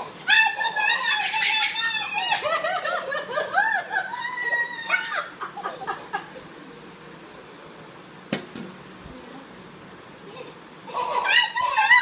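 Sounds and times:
people laughing and giggling: 0:00.6 - 0:06.6.

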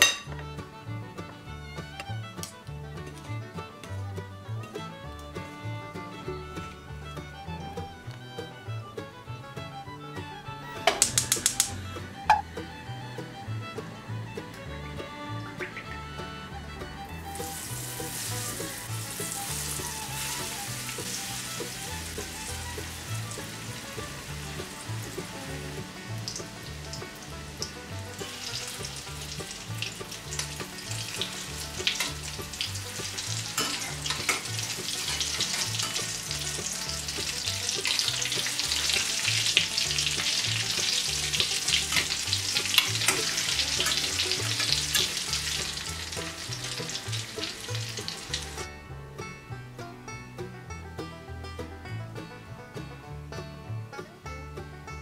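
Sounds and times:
sharp pops and clicks of tongs: 0:10.9 - 0:11.8
food sizzling in hot oil: 0:17.4 - 0:23.8, 0:26.2 - 0:48.6.

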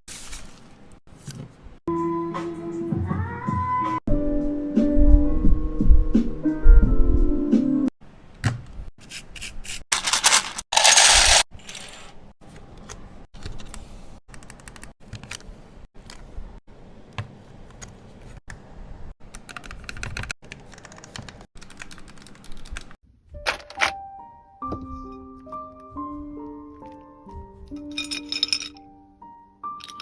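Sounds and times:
mechanical keyboard clacking: 0:19.3 - 0:22.9.

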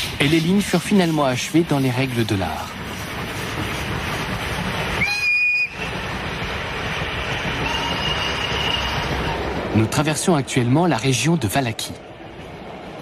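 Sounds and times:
train coaches rumbling past: 0:00.0 - 0:13.0
steam whistle: 0:05.0 - 0:05.8, 0:07.6 - 0:09.3.

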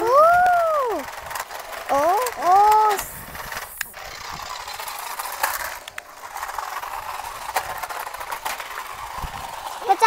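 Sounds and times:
small electric motors whirring: 0:00.0 - 0:10.0
toy wheels rolling: 0:00.0 - 0:10.0
sharp clicks: 0:01.4 - 0:06.1.

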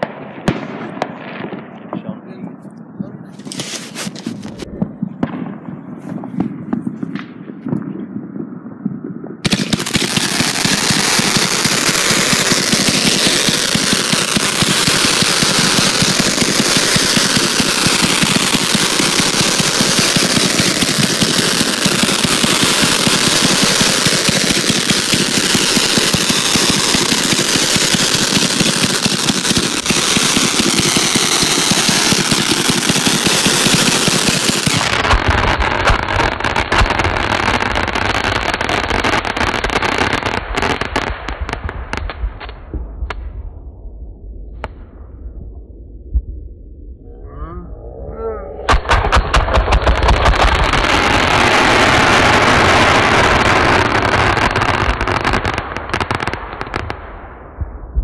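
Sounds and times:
fireworks crackling: 0:03.2 - 0:07.9, 0:09.4 - 0:43.2, 0:48.7 - 0:57.4.

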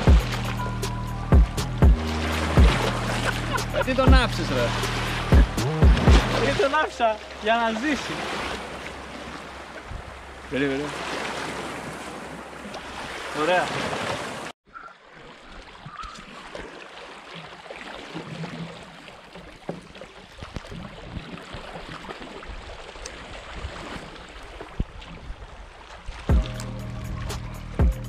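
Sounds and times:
background music: 0:00.0 - 0:08.1, 0:26.3 - 0:28.0.

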